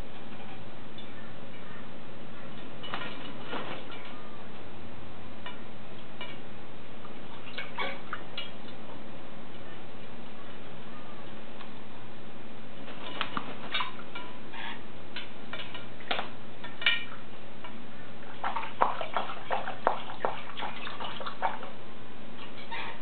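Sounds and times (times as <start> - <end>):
wings fluttering in water: 12.9 - 14.0
parrot splashing in water: 18.3 - 21.7.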